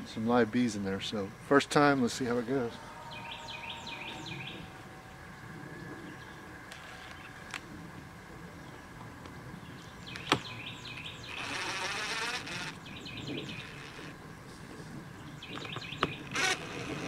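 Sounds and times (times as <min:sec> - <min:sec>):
birds chirping: 0:00.2 - 0:17.0
cordless drill driving screws: 0:11.4 - 0:12.8, 0:16.3 - 0:17.0.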